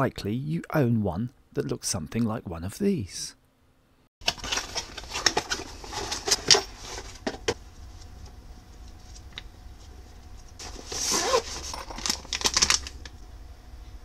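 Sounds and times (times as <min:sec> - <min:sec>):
steady low hum: 0:00.0 - 0:14.0
paper pages rustling: 0:10.6 - 0:13.1
zipper pulled open: 0:10.9 - 0:12.0.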